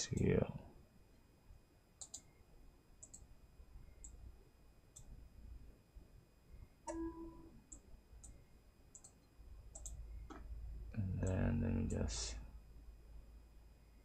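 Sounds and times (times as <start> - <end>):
computer mouse clicking: 2.0 - 2.3, 3.0 - 3.3, 7.7 - 10.4
short tone: 6.9 - 7.6.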